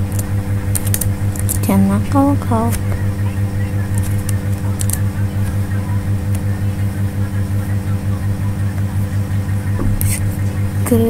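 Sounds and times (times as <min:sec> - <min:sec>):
low pulsing electrical hum: 0:00.0 - 0:11.0
computer keyboard clicks: 0:04.0 - 0:05.0.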